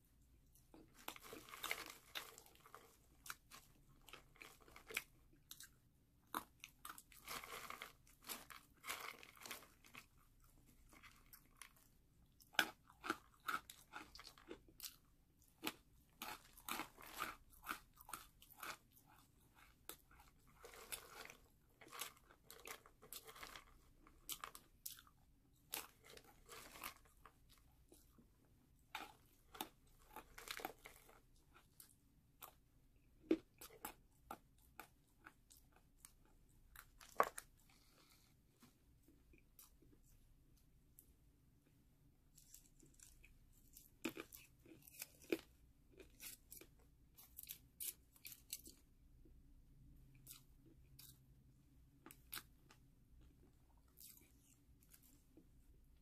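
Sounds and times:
crunchy snack eating: 0.8 - 10.2, 10.8 - 27.6, 28.9 - 32.6, 42.3 - 48.8.

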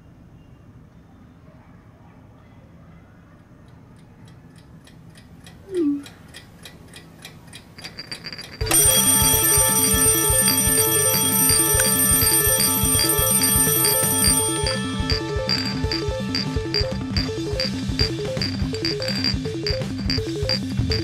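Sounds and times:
clock ticking: 4.0 - 21.0
alarm clock ringing: 7.8 - 21.0
falling phone message tone: 8.6 - 21.0.

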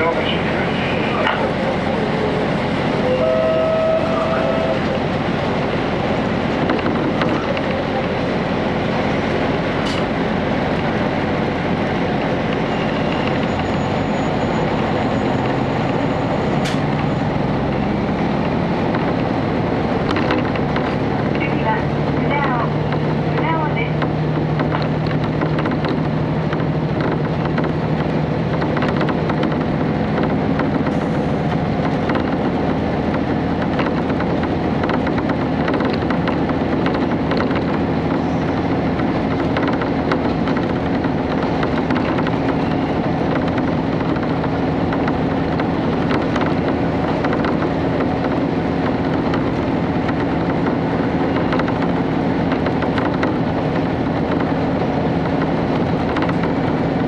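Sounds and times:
diesel engine drone: 0.0 - 57.0
wheel and rail rumble: 0.0 - 57.0.

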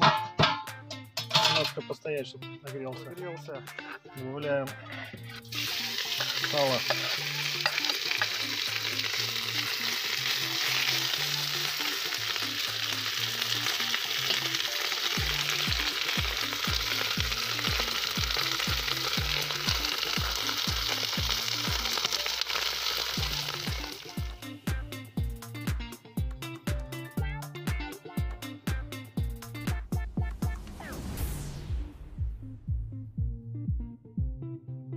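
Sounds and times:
faint background music with bass beat: 0.0 - 12.6, 23.2 - 34.9
metal skimmer stirring: 1.2 - 1.8
pork fat sizzling in a pan: 5.2 - 25.4.

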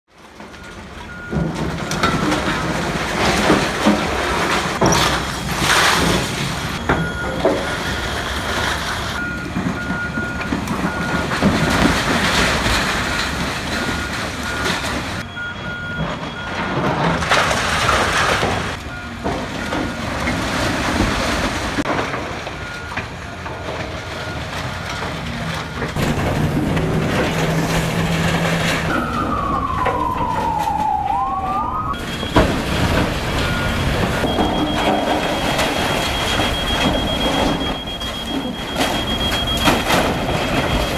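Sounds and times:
debris crashing and scraping: 0.1 - 40.9
excavator engine running: 2.6 - 17.2, 22.3 - 40.9
siren-like tone: 26.0 - 40.9.

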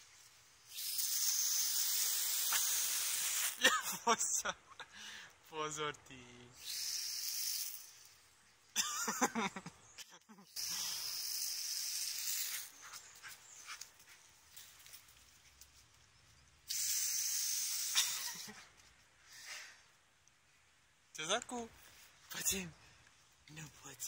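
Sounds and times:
garden hose spray hissing: 0.0 - 4.4, 6.6 - 8.2, 10.4 - 16.0, 16.6 - 18.7.

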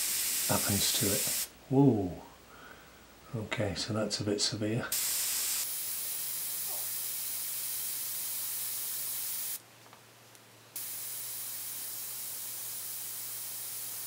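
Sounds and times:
airbrush hissing: 0.0 - 1.5, 4.9 - 9.6, 10.8 - 14.0.

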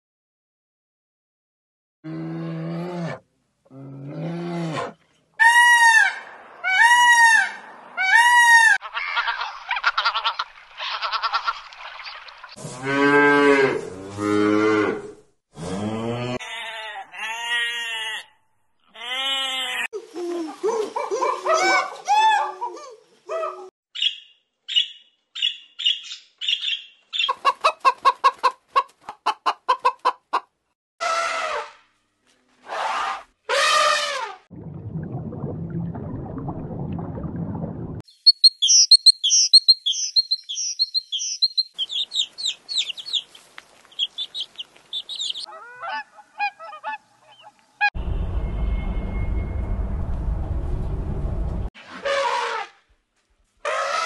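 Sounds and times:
bear moaning: 2.1 - 5.0.

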